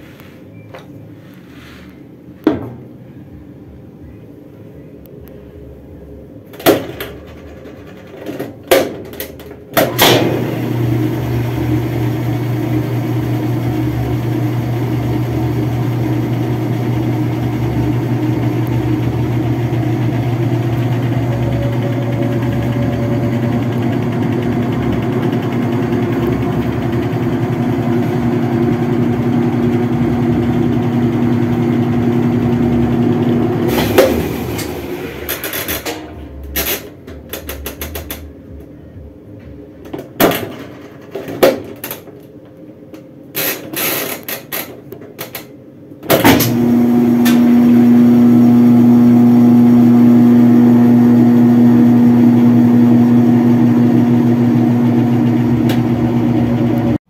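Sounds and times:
washing machine knock: 0:02.4 - 0:02.9
washing machine motor hum: 0:05.6 - 0:40.2, 0:43.4 - 0:57.0.

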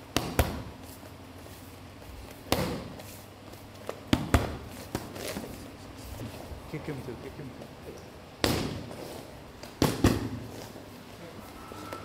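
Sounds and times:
punches slapping onto focus mitts: 0:00.1 - 0:00.7, 0:02.4 - 0:03.0, 0:04.1 - 0:05.2, 0:08.4 - 0:08.9, 0:09.6 - 0:10.4.

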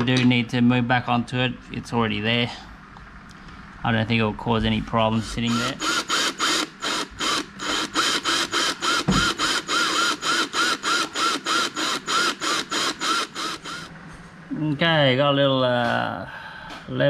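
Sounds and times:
cordless drill in short bursts: 0:05.4 - 0:13.9.

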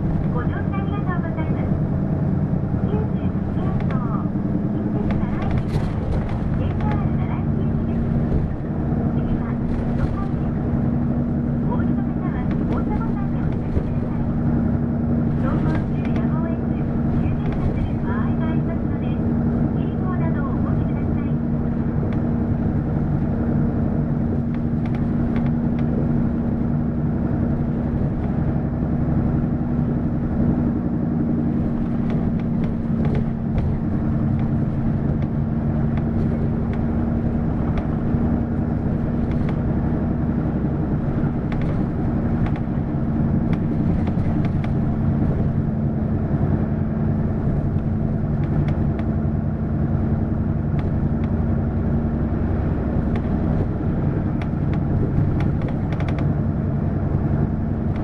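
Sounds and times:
bus diesel engine running: 0:00.0 - 0:58.0.

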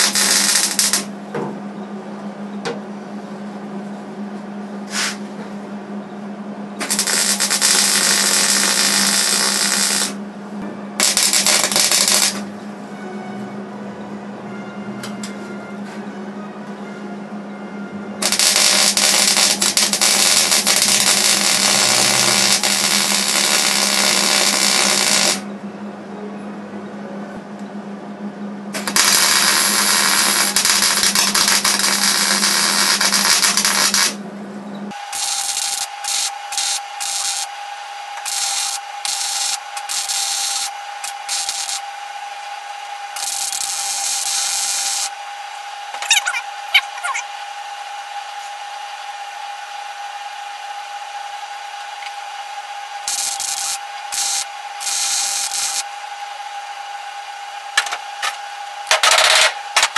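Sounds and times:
electric welding arc: 0:00.0 - 0:01.1, 0:06.8 - 0:10.2, 0:11.0 - 0:12.5, 0:18.2 - 0:25.5, 0:28.7 - 0:34.2, 0:34.9 - 0:47.2, 0:51.7 - 0:56.0, 0:57.7 - 0:59.9
steady whine: 0:00.0 - 0:59.9.

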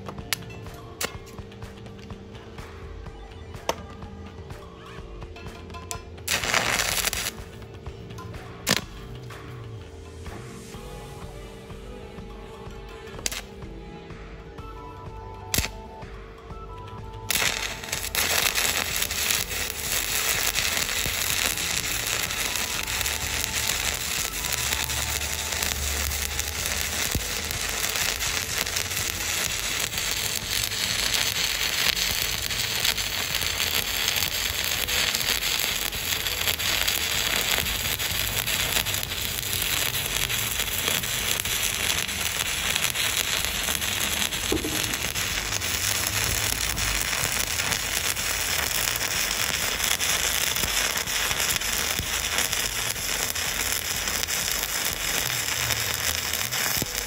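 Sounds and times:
welding arc crackling: 0:00.0 - 0:02.9, 0:05.4 - 0:11.4, 0:12.2 - 0:13.7, 0:15.4 - 0:16.0, 0:17.2 - 0:57.0.

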